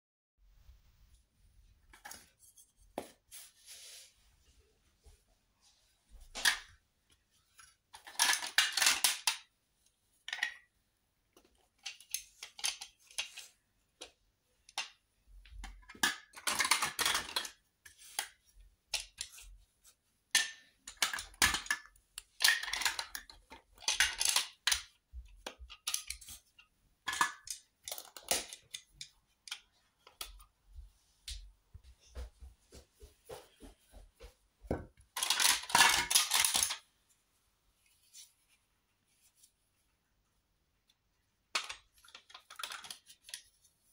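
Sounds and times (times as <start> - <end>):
plastic pieces clattering: 7.9 - 9.5, 11.4 - 13.6, 14.7 - 19.5, 20.3 - 30.3, 35.1 - 36.9, 41.5 - 43.5.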